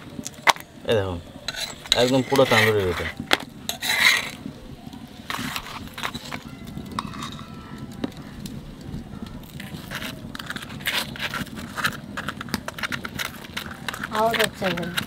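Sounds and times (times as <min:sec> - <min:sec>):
metal spoon scraping plate: 0:01.4 - 0:04.4, 0:05.3 - 0:07.6.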